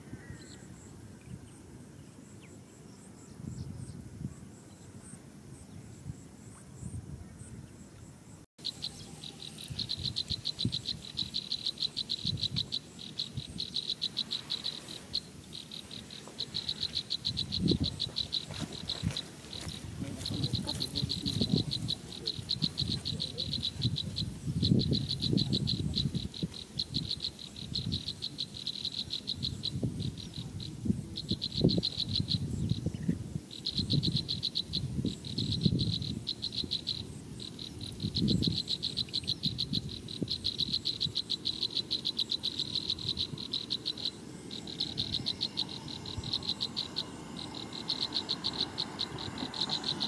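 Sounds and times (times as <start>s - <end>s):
high-pitched trilling calls: 8.6s - 33.1s, 40.4s - 50.0s.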